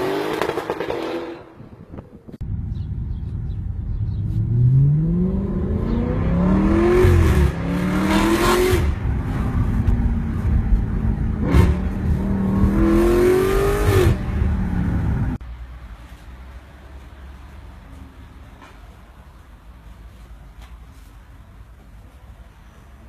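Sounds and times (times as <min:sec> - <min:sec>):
car engine revving: 0:02.5 - 0:15.4.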